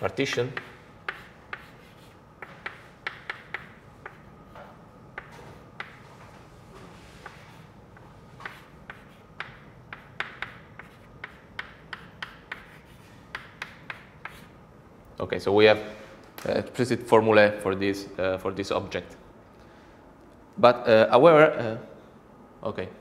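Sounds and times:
chalk tapping and scratching: 0:00.0 - 0:06.2, 0:07.0 - 0:07.7, 0:08.4 - 0:14.6.

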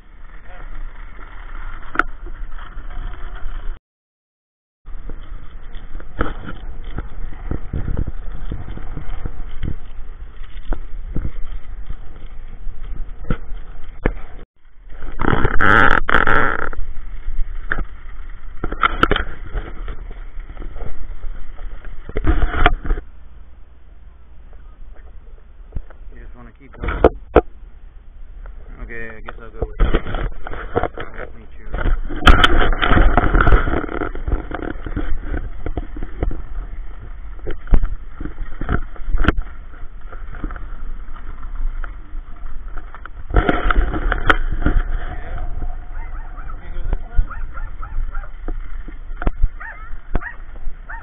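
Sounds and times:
skate wheels rolling on asphalt: 0:00.0 - 0:03.8, 0:04.9 - 0:51.0
wind buffeting microphone: 0:04.9 - 0:15.6, 0:24.5 - 0:51.0.

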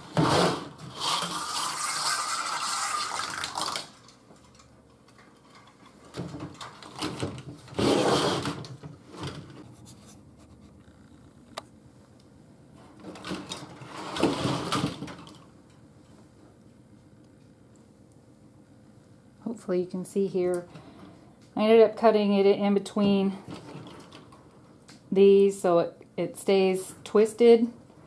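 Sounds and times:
wire and wood scraping on table: 0:00.1 - 0:03.2, 0:07.7 - 0:10.5, 0:13.8 - 0:14.8.

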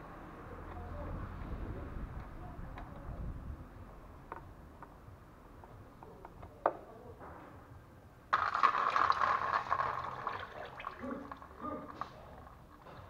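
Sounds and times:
fluid gushing and splashing: 0:08.4 - 0:12.2.

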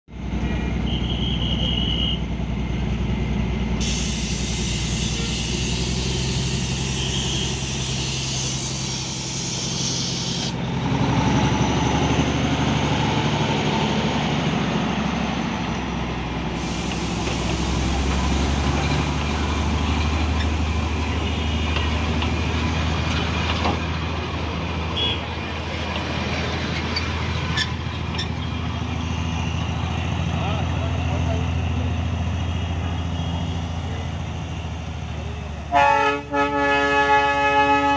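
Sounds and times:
diesel locomotive idling: 0:00.2 - 0:37.9
loud hiss: 0:03.8 - 0:10.6, 0:16.5 - 0:22.9.

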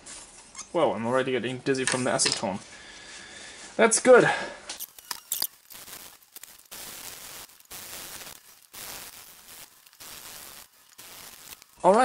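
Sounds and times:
paper towel scrubbing circuit board: 0:04.8 - 0:12.0.

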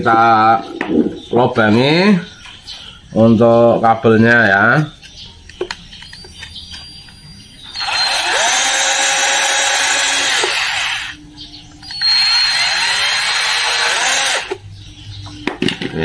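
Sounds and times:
rotary tool drilling: 0:07.7 - 0:11.2, 0:11.8 - 0:14.6.

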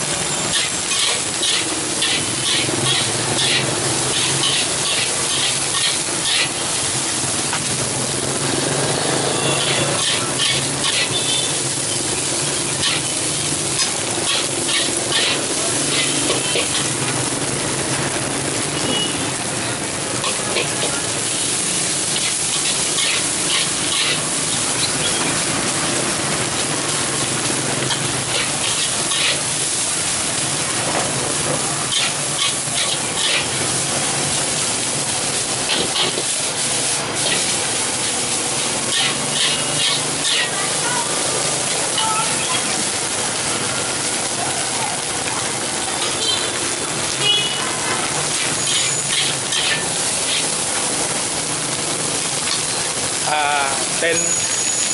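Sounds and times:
rice sizzling in a wok: 0:00.0 - 0:54.9
metal spatula scraping wok: 0:00.2 - 0:06.9, 0:09.2 - 0:11.6, 0:12.6 - 0:17.0, 0:20.2 - 0:25.4, 0:27.8 - 0:29.8, 0:31.3 - 0:34.6, 0:35.2 - 0:36.5, 0:37.2 - 0:40.7, 0:48.3 - 0:50.6.

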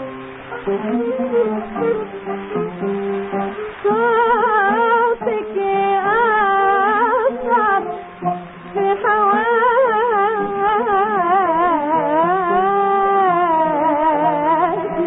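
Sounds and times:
oud playing: 0:00.0 - 0:15.0
woman singing with vibrato: 0:03.7 - 0:15.0.

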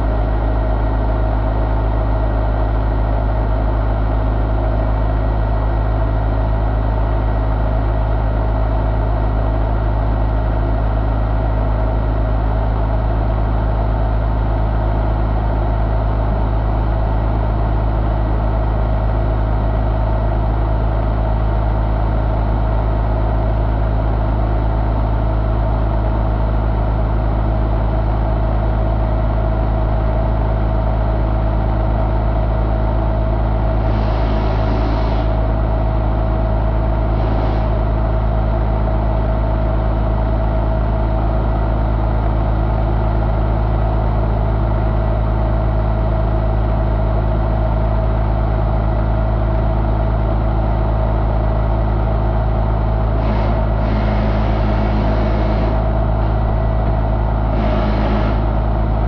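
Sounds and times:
car engine idling: 0:52.9 - 0:59.0.

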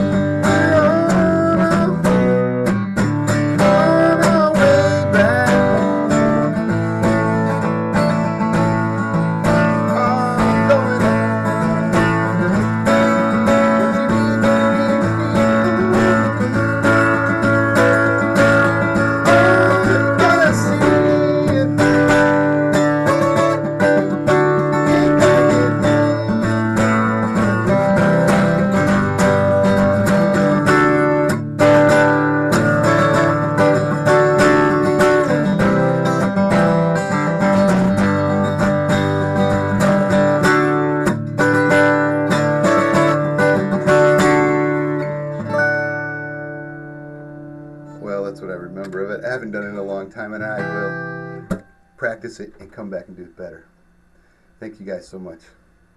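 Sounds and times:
man singing: 0:00.0 - 0:02.7, 0:03.5 - 0:06.8, 0:09.5 - 0:28.6, 0:34.3 - 0:36.2, 0:48.0 - 0:51.5
acoustic guitar strumming: 0:00.0 - 0:55.9.

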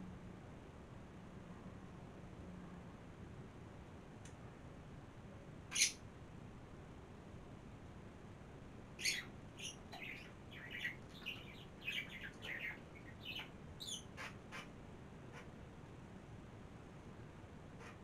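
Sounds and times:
small birds chirping: 0:05.7 - 0:06.0, 0:09.0 - 0:14.7.

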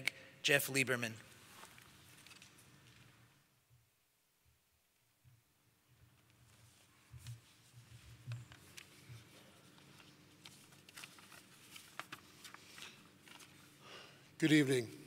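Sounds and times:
paper rustling: 0:01.4 - 0:03.1, 0:06.5 - 0:13.8.

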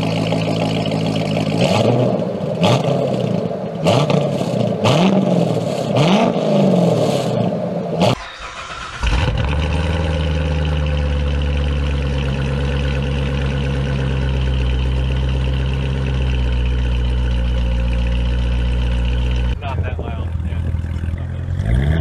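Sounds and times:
car engine revving: 0:00.0 - 0:22.0
car engine cold-start idle: 0:08.1 - 0:21.4.

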